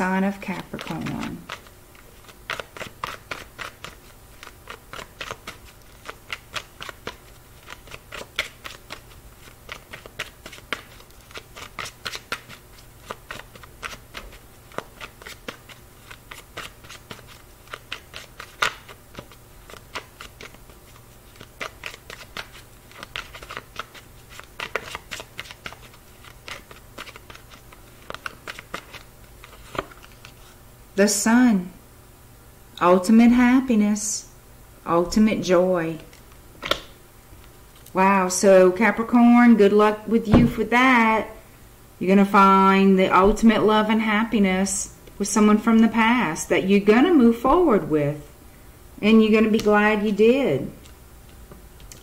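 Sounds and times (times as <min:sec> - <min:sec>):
cards being shuffled: 0:00.5 - 0:30.6.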